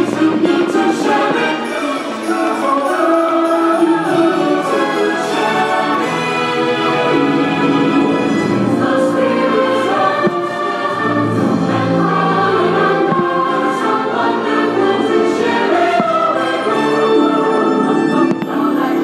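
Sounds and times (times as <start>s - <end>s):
orchestral music with choir: 0.0s - 19.0s.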